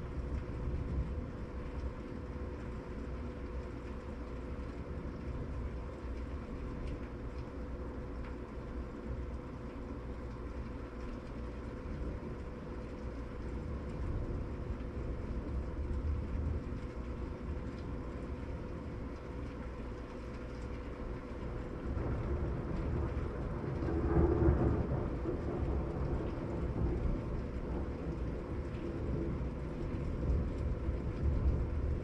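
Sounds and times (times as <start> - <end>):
rolling thunder: 21.8 - 32.0.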